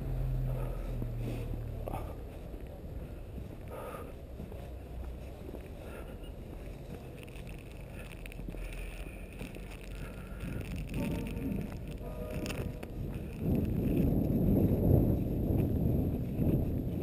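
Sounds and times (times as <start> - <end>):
wind rumble on microphone: 0.0 - 17.0
footsteps crunching in snow: 0.7 - 17.0.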